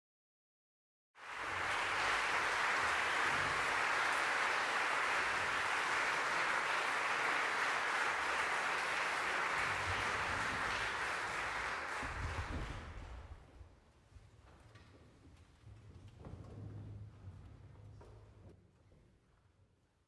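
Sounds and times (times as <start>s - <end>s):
audience applauding: 1.2s - 13.1s.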